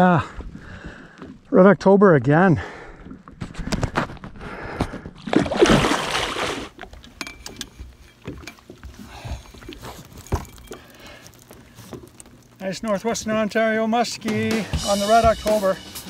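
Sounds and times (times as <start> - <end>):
water splashing: 5.2 - 12.7.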